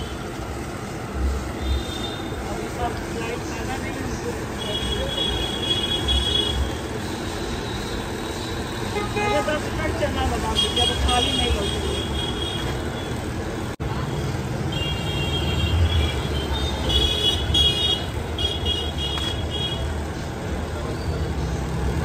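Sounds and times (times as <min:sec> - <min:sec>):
street traffic rumbling: 0:00.0 - 0:22.0
vehicle horns honking: 0:01.6 - 0:02.5, 0:04.5 - 0:13.2, 0:14.7 - 0:19.9.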